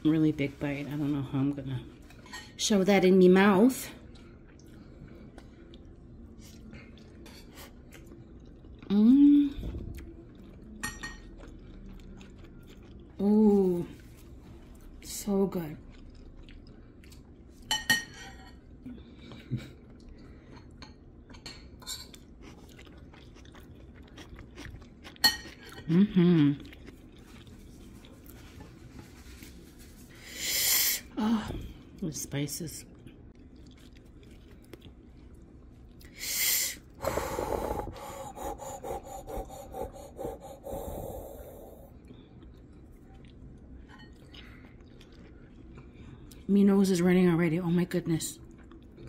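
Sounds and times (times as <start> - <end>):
soft chewing: 4.0 - 17.7, 18.3 - 30.1, 32.8 - 36.2, 37.7 - 46.5, 48.4 - 49.0
hissing intake of breath: 36.2 - 41.9
person breathing and sniffing: 36.2 - 42.0.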